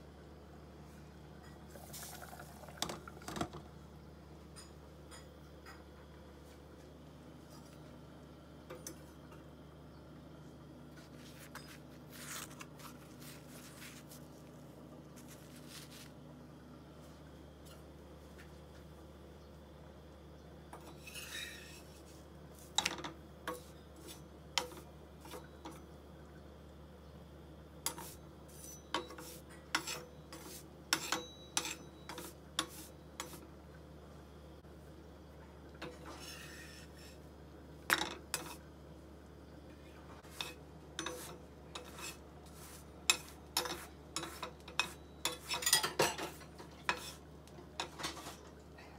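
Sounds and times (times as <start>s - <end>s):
steady low hum: 0.0s - 48.9s
spatula scraping a skillet: 20.8s - 22.9s, 27.9s - 33.4s, 35.8s - 37.3s, 38.3s - 38.6s, 40.2s - 48.4s
spatula tapping: 40.4s - 45.6s.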